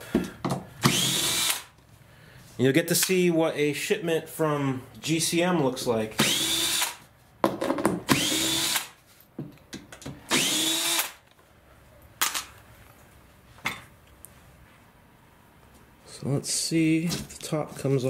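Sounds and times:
cordless drill whining: 0.8s - 1.7s, 6.2s - 7.0s, 8.1s - 8.9s, 10.3s - 11.2s.

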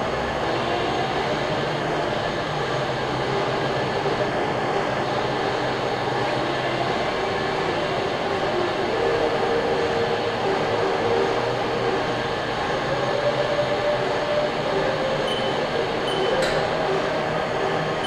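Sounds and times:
machine hum: 0.0s - 18.0s
short high beep: 15.3s - 16.6s.

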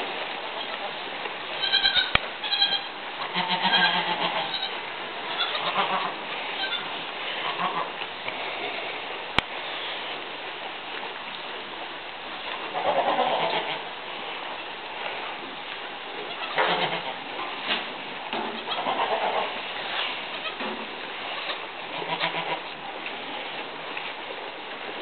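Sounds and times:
goats bleating: 1.6s - 8.0s, 12.7s - 13.8s, 16.3s - 17.2s, 18.6s - 19.6s, 21.2s - 22.7s.

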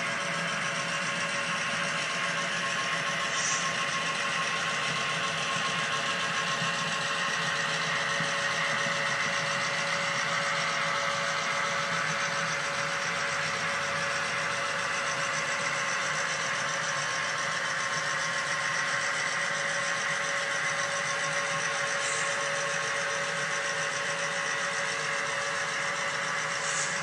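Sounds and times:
model train humming: 0.0s - 27.0s.

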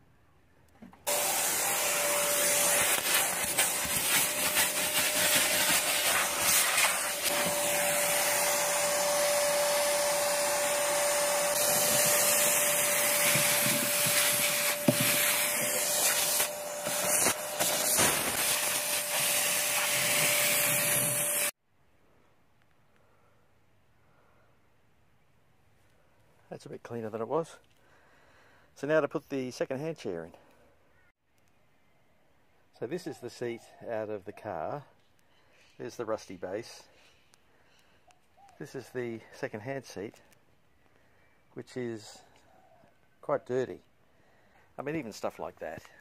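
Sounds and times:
vacuum cleaner running: 1.1s - 21.5s.

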